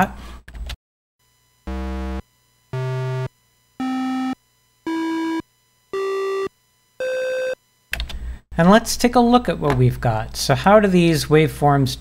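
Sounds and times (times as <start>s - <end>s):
computer electronic tones: 1.7s - 7.6s.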